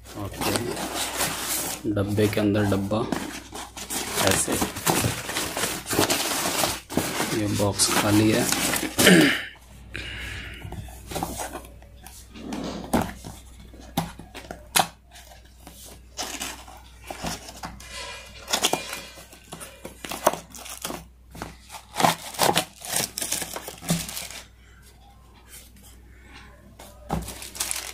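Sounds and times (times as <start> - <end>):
cardboard box rustling and tearing: 0.1 - 9.1, 14.7 - 17.8, 18.4 - 24.4, 27.1 - 27.9.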